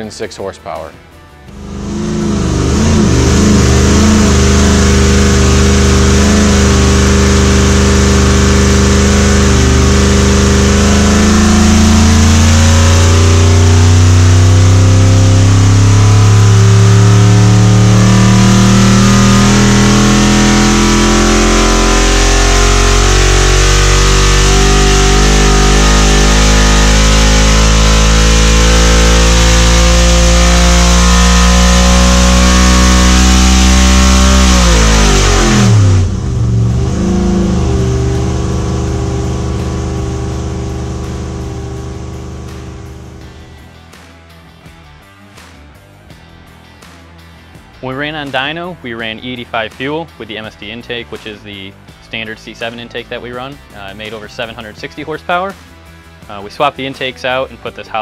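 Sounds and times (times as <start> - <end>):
engine revving on dyno: 1.5 - 43.5.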